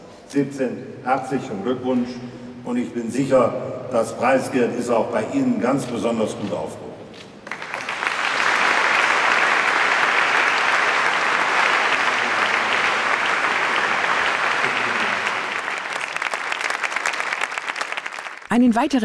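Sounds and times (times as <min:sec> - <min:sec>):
audience applauding: 0:07.4 - 0:18.5.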